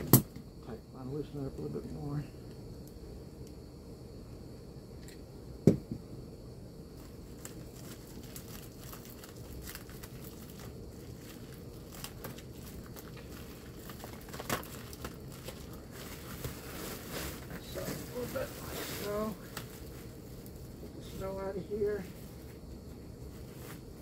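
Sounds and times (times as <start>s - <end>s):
sharp knock: 5.6s - 6.0s
foil duct crinkling: 7.0s - 24.0s.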